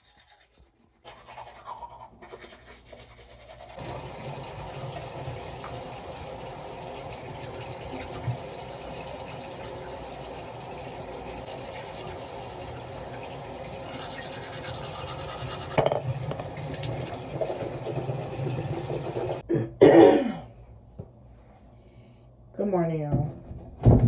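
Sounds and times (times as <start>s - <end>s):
toothbrush scrubbing: 0.0s - 4.1s, 7.4s - 15.8s
tap running into sink: 3.8s - 5.9s, 7.4s - 8.8s.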